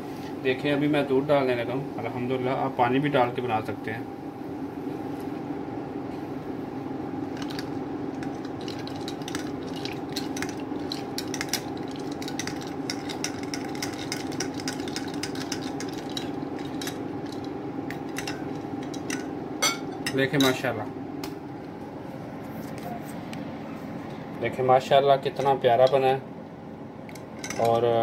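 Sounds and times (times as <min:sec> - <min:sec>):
steady background hum: 0:00.0 - 0:28.0
spoon clinking against glass mug: 0:18.1 - 0:20.6.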